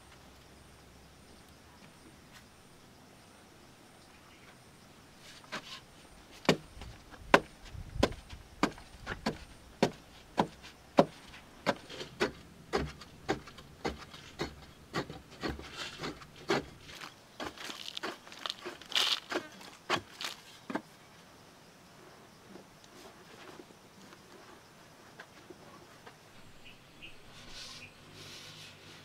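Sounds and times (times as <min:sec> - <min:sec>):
tool scraping soil: 0:05.2 - 0:06.6, 0:07.3 - 0:20.7, 0:27.0 - 0:29.0
digging tool chopping into clay: 0:07.3 - 0:16.8.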